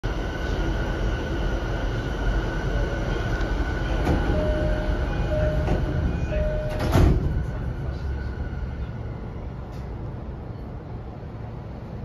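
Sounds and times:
train car hum: 0:00.0 - 0:12.0
door-closing chime: 0:04.2 - 0:07.2.

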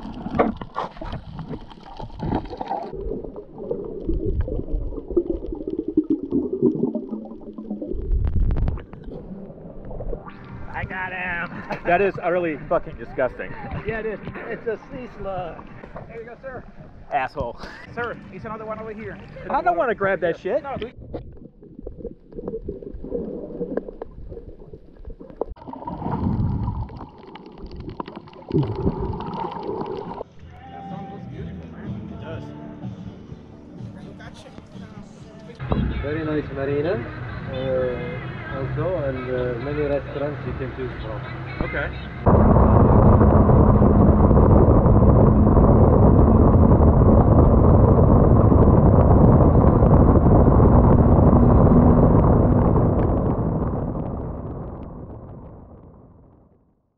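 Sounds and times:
sharp clicks underwater: 0:00.0 - 0:10.6
underwater rushing and bubbling: 0:00.0 - 0:14.2, 0:14.8 - 0:17.1, 0:19.2 - 0:30.3, 0:35.7 - 0:56.7
low rumbles: 0:00.0 - 0:30.6, 0:35.6 - 0:56.8.

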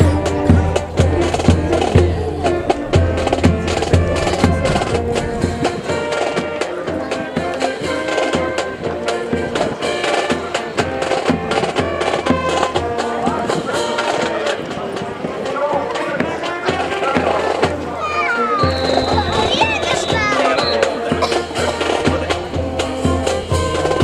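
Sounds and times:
music with drums: 0:00.0 - 0:24.0.

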